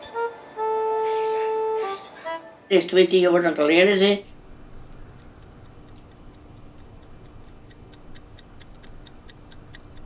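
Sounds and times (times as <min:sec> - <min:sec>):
faint steady hum: 0:00.0 - 0:10.0
wall clock ticking: 0:04.2 - 0:10.0.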